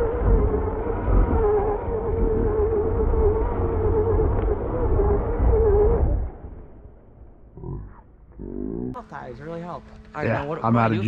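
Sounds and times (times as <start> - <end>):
electric motor whining: 0.0 - 6.5.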